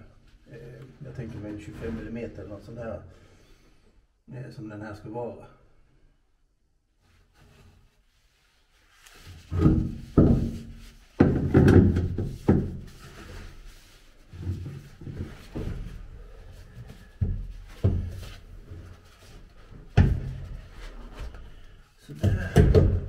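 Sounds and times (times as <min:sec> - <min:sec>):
wooden knocks and thunks: 0:09.5 - 0:13.0, 0:17.1 - 0:18.3, 0:19.9 - 0:20.8, 0:22.2 - 0:23.0.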